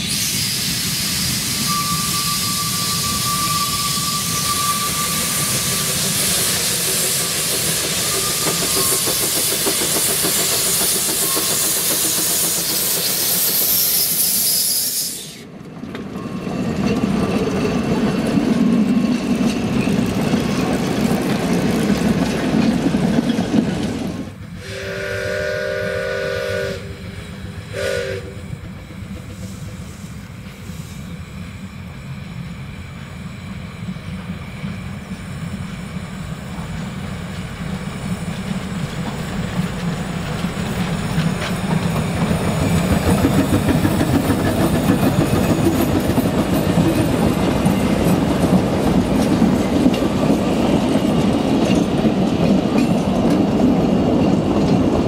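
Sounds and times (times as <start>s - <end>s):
steam whistle: 0.0s - 7.1s, 24.6s - 28.6s
steam hissing: 0.0s - 15.5s, 24.5s - 51.0s
steam engine rumbling: 0.0s - 15.6s, 16.4s - 55.0s.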